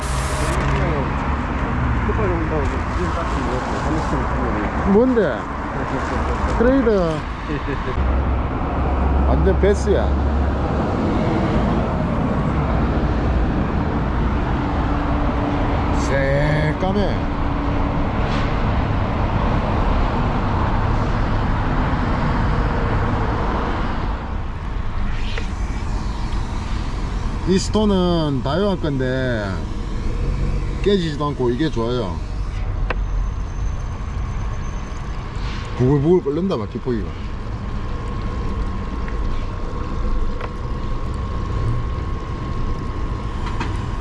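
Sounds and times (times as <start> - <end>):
aerator pump humming: 0.0 - 0.9, 23.2 - 44.0
air stone bubbling in water: 33.4 - 44.0.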